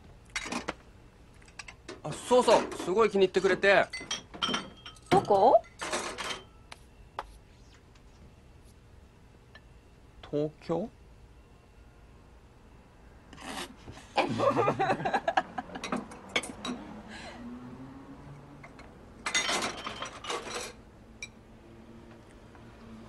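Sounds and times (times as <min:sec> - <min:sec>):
people laughing: 0:14.1 - 0:15.9.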